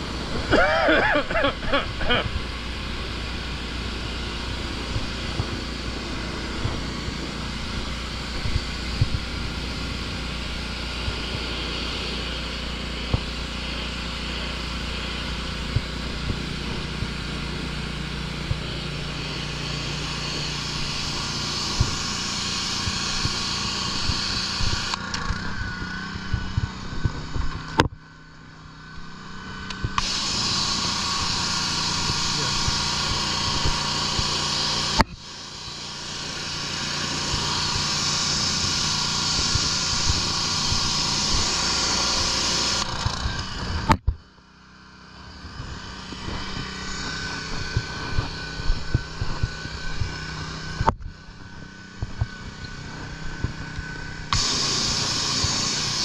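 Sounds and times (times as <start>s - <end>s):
hiss of water spray: 0.0s - 25.0s, 30.0s - 42.9s, 54.3s - 56.0s
pressure washer engine hum: 0.0s - 56.0s.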